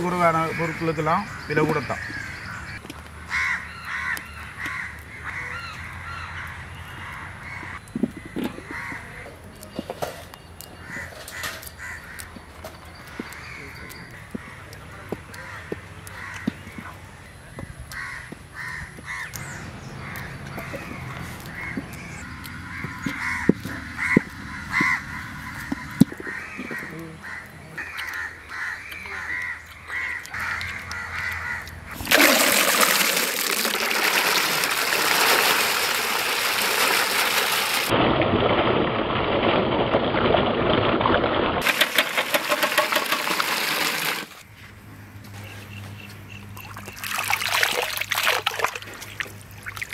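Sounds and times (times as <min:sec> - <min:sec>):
crows cawing: 0:01.8 - 0:09.2, 0:10.8 - 0:12.4, 0:13.1 - 0:17.0, 0:17.9 - 0:32.0
water pouring and splashing: 0:31.9 - 0:44.5, 0:46.6 - 0:49.9.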